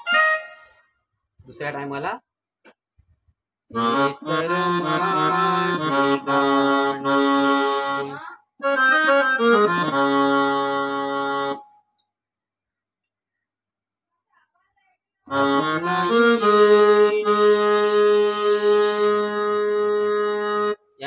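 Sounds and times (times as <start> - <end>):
electronic keyboard slow melody: 3.7 - 12.0, 15.3 - 21.0.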